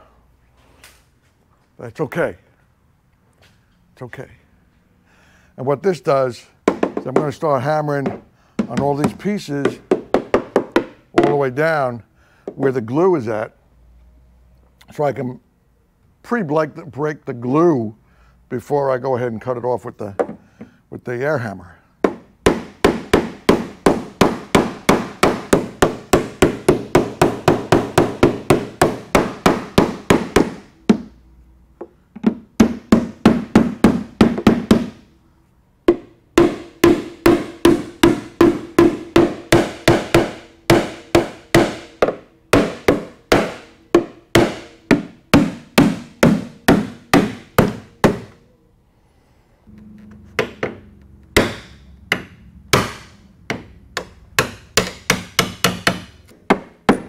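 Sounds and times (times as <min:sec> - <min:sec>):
hammer striking fiberglass: 0:22.0 - 0:31.1, 0:35.9 - 0:48.3, 0:51.4 - 0:57.0.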